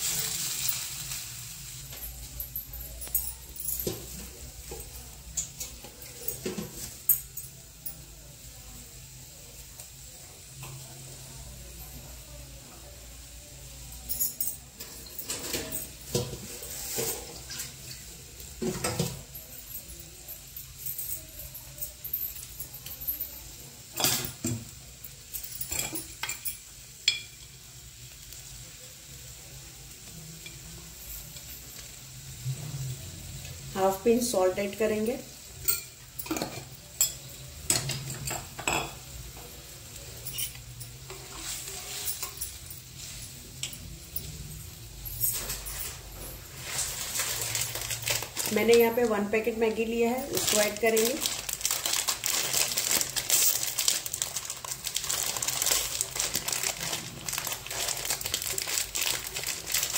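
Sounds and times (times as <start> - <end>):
faint steady hiss: 0.0 - 59.9
light pan sounds: 0.0 - 59.9
spoon clinking and scraping in pan: 20.2 - 27.7, 35.4 - 47.8.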